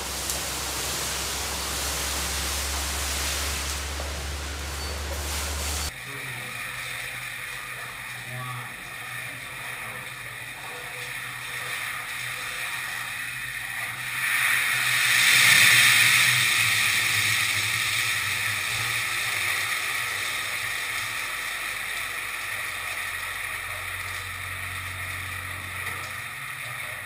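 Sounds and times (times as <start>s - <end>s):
oil fire rushing hiss: 0.0s - 5.9s, 11.3s - 27.0s
hot oil sizzling and boiling: 0.0s - 27.0s.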